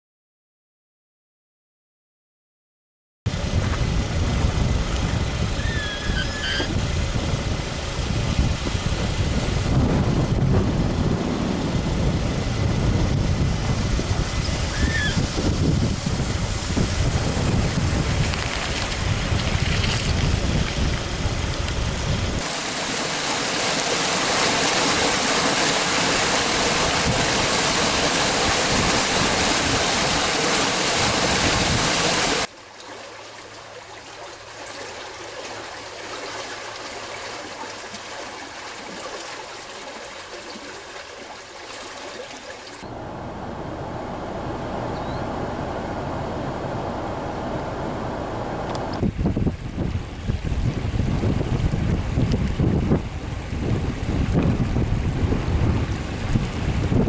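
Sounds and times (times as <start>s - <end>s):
rushing water: 3.3s - 42.9s, 48.9s - 57.0s
creek flowing: 13.6s - 43.0s
bird chirps: 14.4s - 15.2s, 44.9s - 45.3s.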